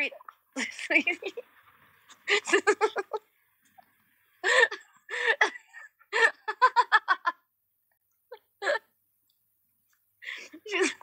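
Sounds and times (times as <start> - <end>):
woman laughing: 2.3 - 3.2, 4.4 - 7.4.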